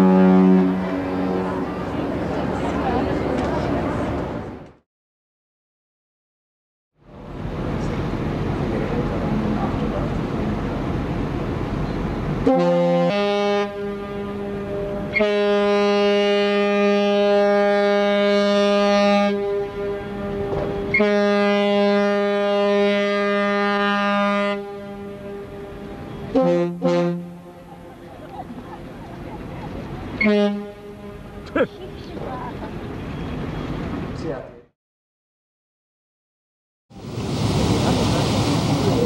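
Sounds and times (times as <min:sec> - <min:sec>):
deep ship's horn blasts: 0:00.0 - 0:02.0, 0:12.4 - 0:27.8, 0:30.1 - 0:31.5
rushing noise: 0:36.9 - 0:39.0.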